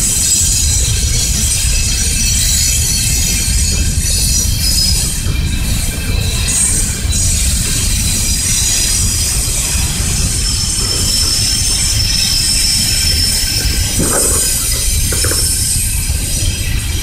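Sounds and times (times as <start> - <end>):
freight cars rumbling: 0.0 - 17.0
steel wheels squealing: 0.0 - 17.0.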